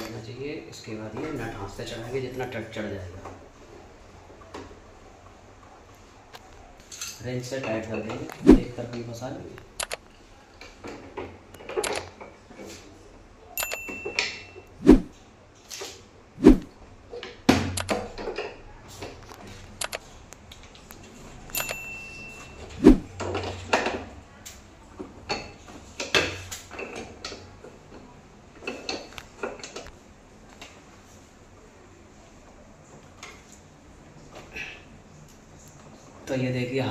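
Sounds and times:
short metallic pings: 0:13.6 - 0:14.7, 0:21.5 - 0:22.6.

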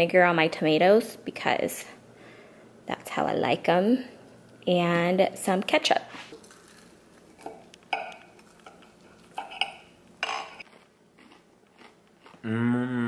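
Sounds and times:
knife and fork scraping a plate: 0:07.4 - 0:10.6
person humming mmm: 0:12.4 - 0:13.0.

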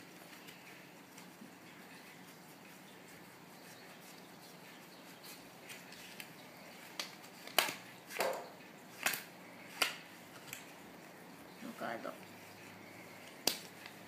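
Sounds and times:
playing cards snapping: 0:06.9 - 0:08.4, 0:09.0 - 0:10.7, 0:13.2 - 0:14.0.

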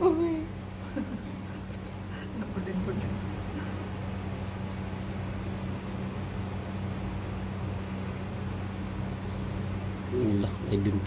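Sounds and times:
constant hiss: 0:00.0 - 0:11.0
low electrical hum: 0:00.0 - 0:11.0.

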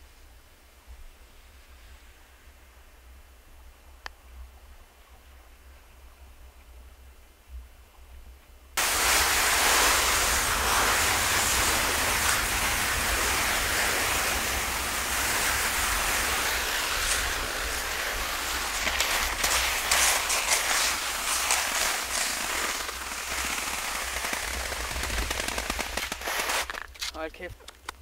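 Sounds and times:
wind on microphone: 0:08.8 - 0:23.1
skis running over crusted snow: 0:08.8 - 0:27.8
crackling clicks: 0:08.8 - 0:28.0.

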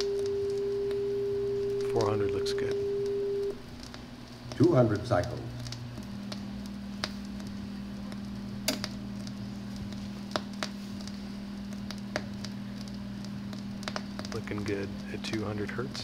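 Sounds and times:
sine test tone: 0:00.0 - 0:03.6.

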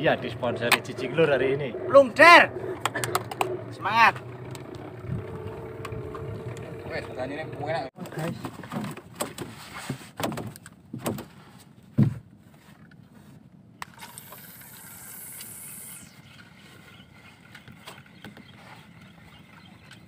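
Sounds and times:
fishing reel clicks: 0:14.0 - 0:16.2.

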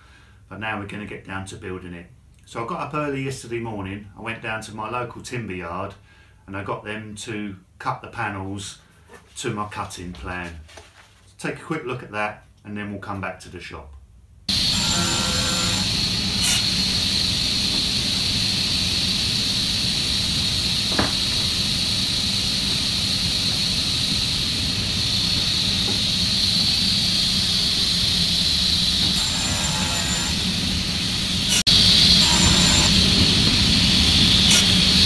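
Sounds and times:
low hum: 0:14.5 - 0:35.0
panel saw blade whining: 0:14.5 - 0:35.0.

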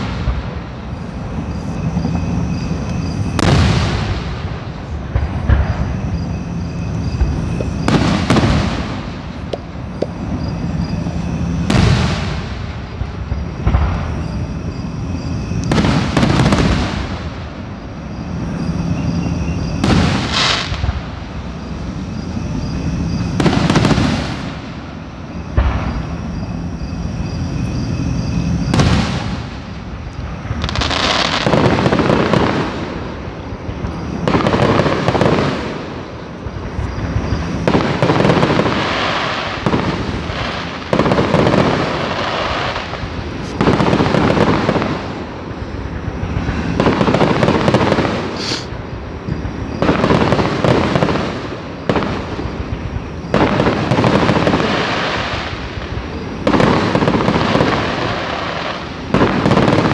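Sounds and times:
fireworks crackling: 0:00.0 - 0:59.9
fireworks shells bursting: 0:46.0 - 0:48.8.

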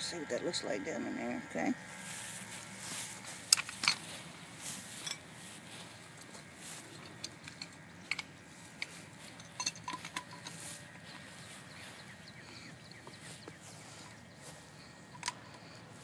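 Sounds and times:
metal tools clinking on metal: 0:03.4 - 0:04.2, 0:04.9 - 0:05.6, 0:06.2 - 0:11.4.

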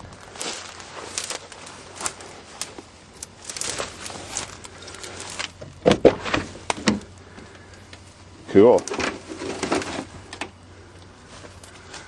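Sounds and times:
dry weeds rustling against van: 0:00.0 - 0:12.0
van door clunking open: 0:05.6 - 0:07.1.

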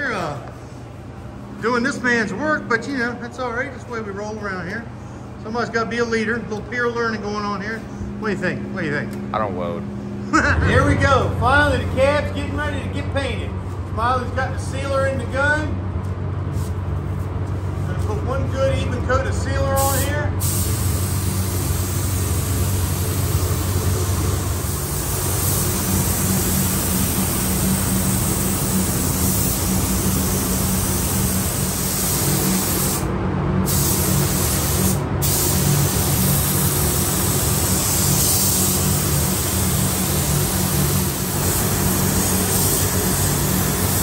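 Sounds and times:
steady low hum: 0:00.0 - 0:44.0
spray gun hissing: 0:19.8 - 0:33.1, 0:33.7 - 0:44.0.

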